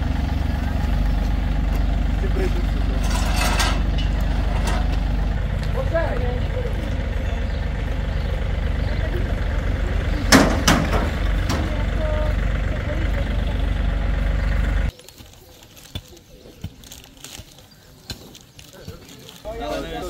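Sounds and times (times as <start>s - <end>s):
engine rumbling: 0.0s - 20.0s
sharp knocks: 10.3s - 11.7s.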